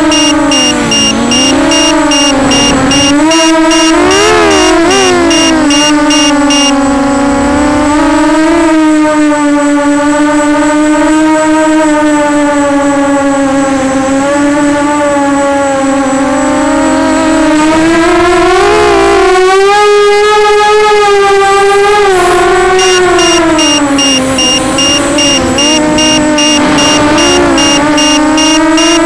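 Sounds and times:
rapid low-battery alarm beeping: 0:00.0 - 0:08.2, 0:22.0 - 0:29.0
quadcopter motors whining: 0:00.0 - 0:29.0.

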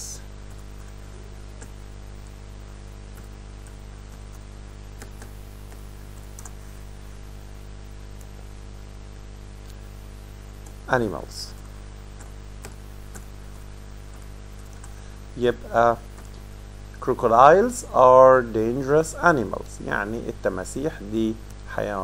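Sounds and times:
low electrical hum: 0:00.0 - 0:22.0
computer keyboard keystrokes: 0:01.6 - 0:01.8, 0:05.0 - 0:06.6, 0:12.2 - 0:13.3.

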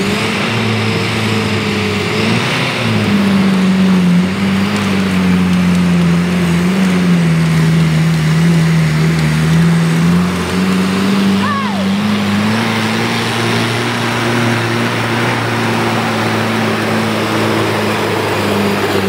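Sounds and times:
off-road vehicle engine under load: 0:00.0 - 0:19.0.

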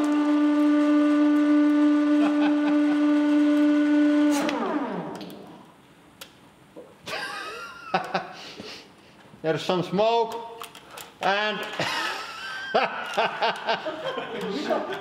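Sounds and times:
electric motor humming: 0:00.0 - 0:05.7.

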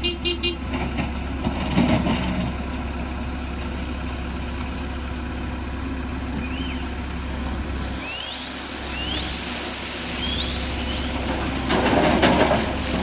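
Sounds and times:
diesel excavator engine idling: 0:00.0 - 0:13.0.

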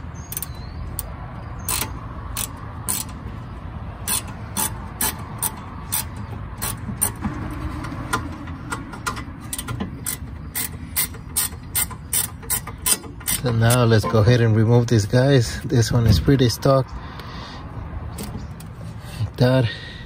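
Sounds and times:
ratchet wrench clicking: 0:00.2 - 0:03.4, 0:04.0 - 0:07.2, 0:08.1 - 0:14.0.

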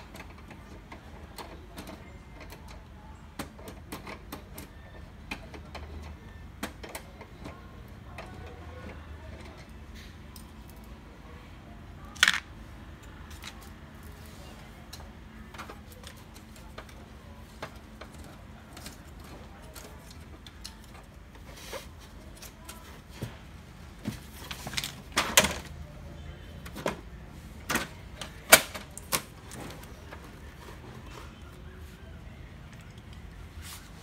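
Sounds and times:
plastic parts clicking and clacking: 0:12.0 - 0:21.8, 0:24.3 - 0:25.9, 0:26.6 - 0:31.0.

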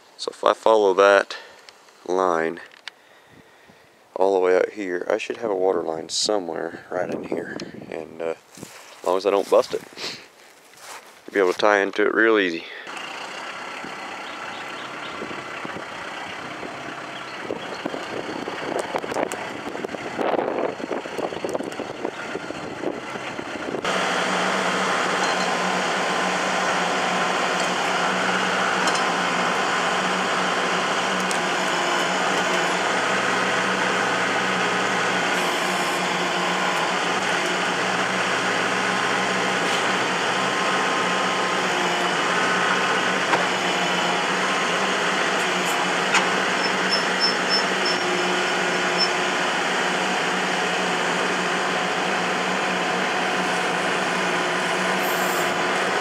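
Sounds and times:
tractor diesel engine running: 0:12.5 - 0:56.0.

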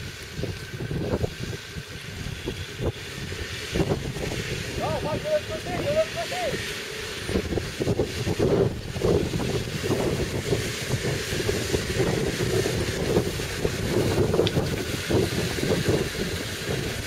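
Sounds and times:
vehicle engine running: 0:00.0 - 0:17.0
wind buffeting microphone: 0:00.0 - 0:17.0.

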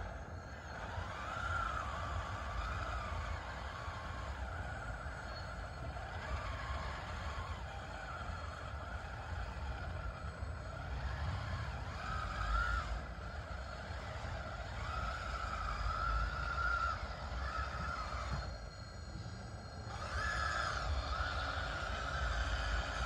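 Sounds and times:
toy bulldozer electric motors whining: 0:00.0 - 0:23.0.

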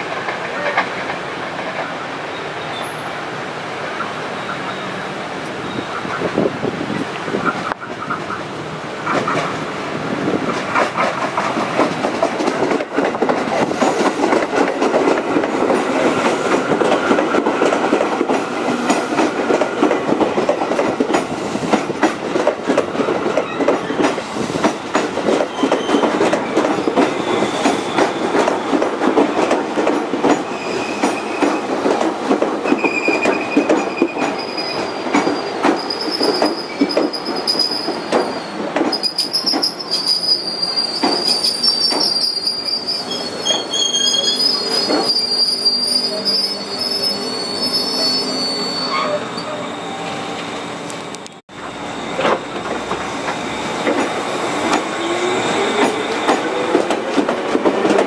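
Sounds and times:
train rumble: 0:03.8 - 0:39.8, 0:49.1 - 0:58.0
train wheels clicking over rail joints: 0:09.0 - 0:40.4, 0:41.0 - 0:42.3, 0:51.2 - 0:58.0
high wheel squeals: 0:25.5 - 0:28.7, 0:30.5 - 0:31.7, 0:32.7 - 0:50.8, 0:51.6 - 0:56.7.

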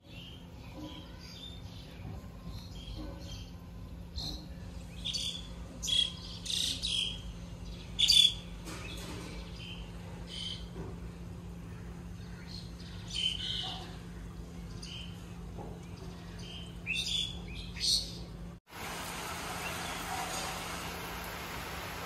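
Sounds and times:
birds chirping and calling: 0:00.0 - 0:10.8, 0:11.5 - 0:18.4
rain hiss: 0:18.7 - 0:22.0.

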